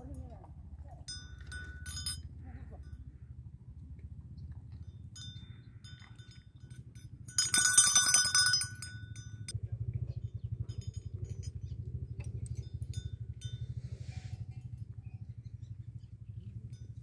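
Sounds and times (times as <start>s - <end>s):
small metal bell jingling: 1.0s - 3.0s, 5.0s - 9.5s, 10.6s - 14.9s.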